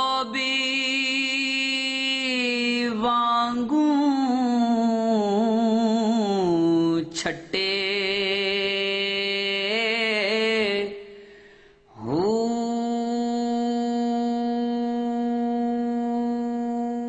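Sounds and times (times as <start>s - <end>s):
person chanting with vibrato: 0.0s - 17.0s
person breathing: 11.0s - 12.0s.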